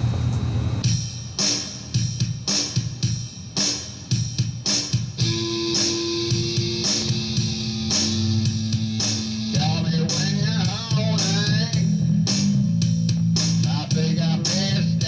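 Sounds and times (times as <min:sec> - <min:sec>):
steady drum beat: 0:00.8 - 0:15.0
bass guitar: 0:05.1 - 0:15.0
wavering lead melody: 0:05.2 - 0:11.4
electric guitar: 0:05.2 - 0:15.0.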